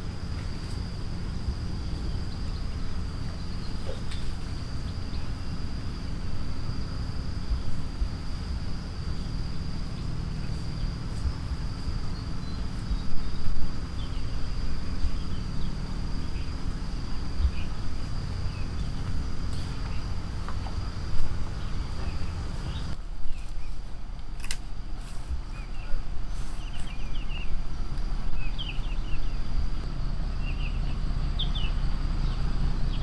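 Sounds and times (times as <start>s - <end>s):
insect trilling: 0.0s - 23.5s.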